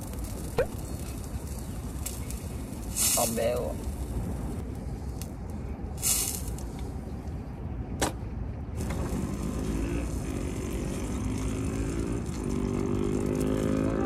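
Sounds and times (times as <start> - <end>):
engine drone rising in pitch: 8.8 - 14.0.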